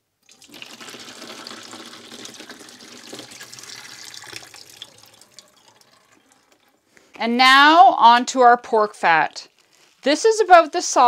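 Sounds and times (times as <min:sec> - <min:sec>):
water poured into metal sink: 0:00.2 - 0:06.8.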